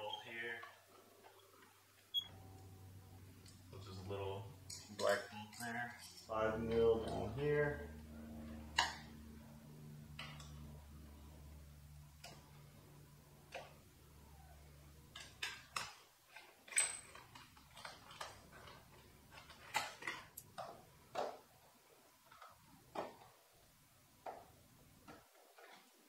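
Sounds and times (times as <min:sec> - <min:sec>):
low hum: 0:02.2 - 0:15.1.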